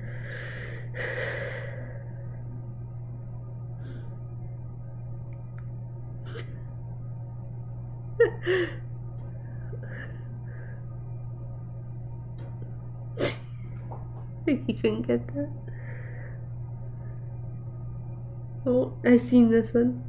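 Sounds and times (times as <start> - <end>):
low electrical hum: 0.0 - 20.0
woman sighing: 8.3 - 8.9.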